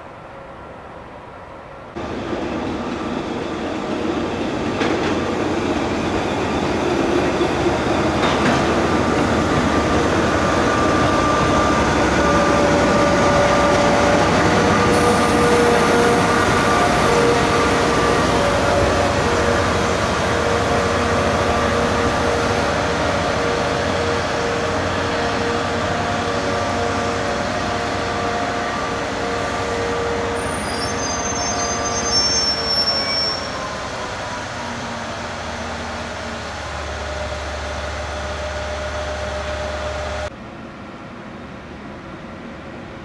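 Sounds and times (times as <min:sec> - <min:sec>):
rail grinding train humming: 0:00.0 - 0:43.0
high squeal: 0:30.2 - 0:34.6.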